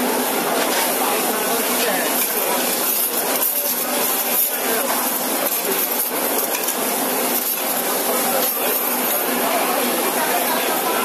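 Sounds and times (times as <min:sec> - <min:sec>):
food sizzling: 0:00.2 - 0:10.8
metal spatula scraping griddle: 0:02.1 - 0:09.3.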